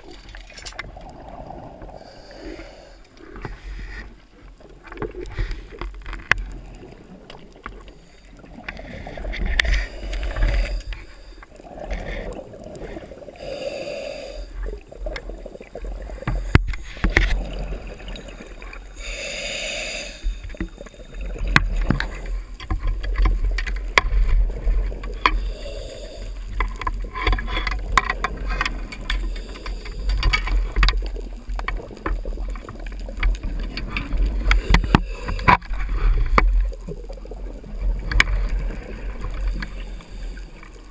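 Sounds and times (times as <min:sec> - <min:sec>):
diver's exhaled bubbles gushing: 0:14.6 - 0:19.0
sharp underwater clicks: 0:37.9 - 0:39.8.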